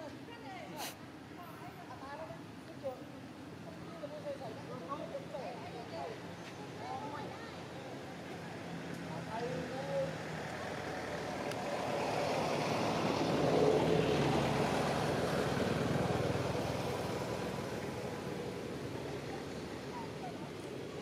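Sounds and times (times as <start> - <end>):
vehicle passing by: 9.4 - 20.4.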